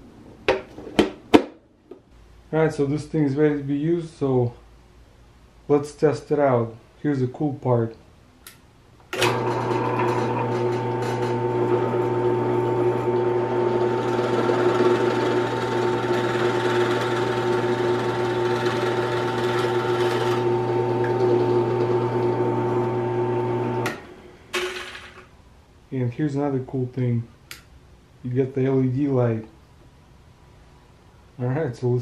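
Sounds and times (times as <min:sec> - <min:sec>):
drill press motor humming: 0:09.2 - 0:24.2.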